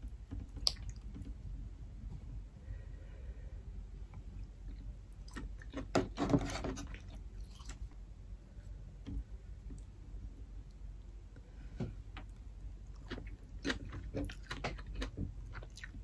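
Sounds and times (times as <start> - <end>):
chewing: 6.9 - 7.9, 12.8 - 16.0.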